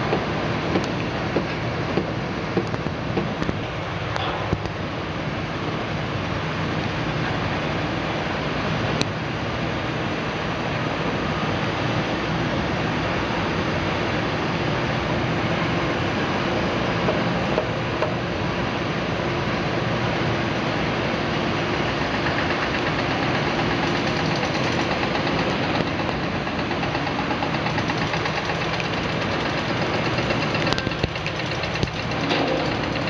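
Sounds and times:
excavator diesel engines running: 0.0s - 33.0s.

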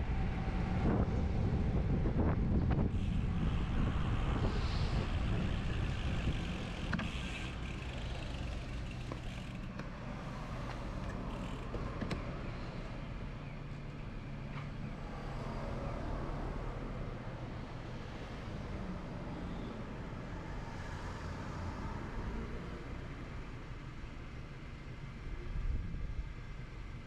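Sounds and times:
wind rumbling on microphone: 0.0s - 9.3s, 25.4s - 26.6s
road and traffic noise: 0.0s - 27.0s.

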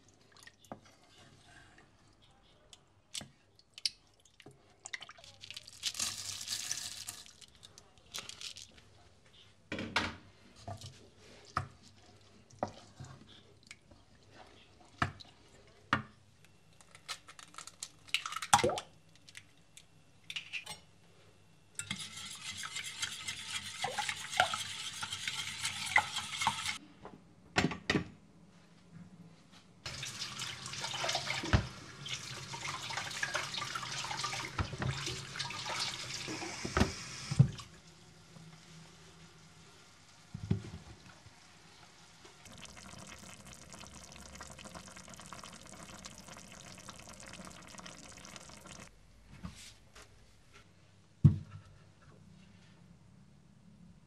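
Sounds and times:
wooden spoon scraping a pot: 21.9s - 26.8s
kitchen tap running: 22.0s - 26.8s, 29.9s - 37.7s, 42.4s - 48.9s.

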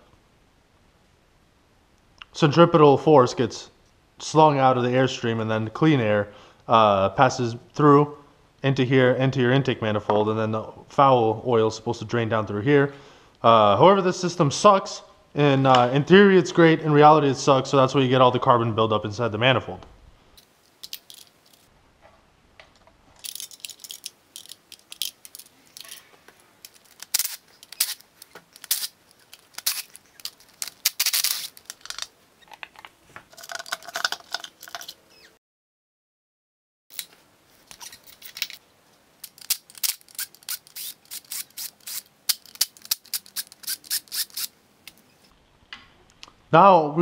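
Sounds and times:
metal hand tools clicking: 23.2s - 32.1s, 39.2s - 45.0s.

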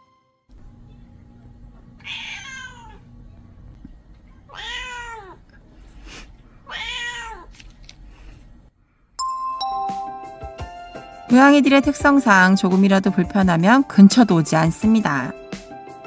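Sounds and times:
cat meowing: 2.0s - 3.0s, 4.5s - 5.5s, 6.6s - 7.5s.

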